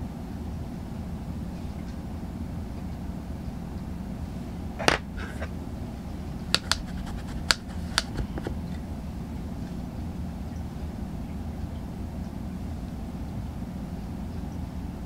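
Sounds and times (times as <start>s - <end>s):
steady low hum: 0.0s - 15.0s
makeup items clicking: 6.5s - 8.8s.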